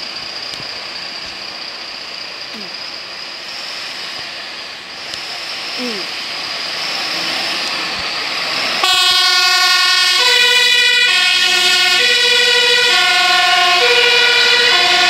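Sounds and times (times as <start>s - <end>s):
fire engine running: 0.0s - 15.0s
two-tone siren: 8.8s - 15.0s.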